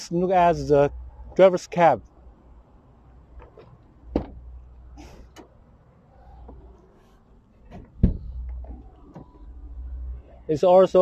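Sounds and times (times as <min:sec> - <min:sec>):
van door opening clunk: 0:03.4 - 0:05.6, 0:07.5 - 0:09.5.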